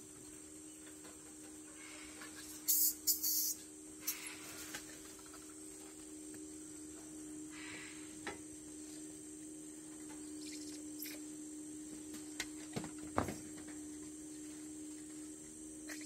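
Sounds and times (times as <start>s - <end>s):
rustle: 0.0s - 11.3s
low hum: 0.0s - 16.0s
high-pitched insect drone: 1.8s - 16.0s.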